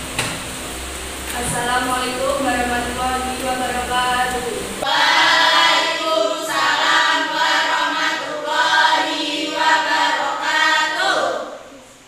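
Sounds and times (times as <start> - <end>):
students chanting in unison: 4.8 - 11.8.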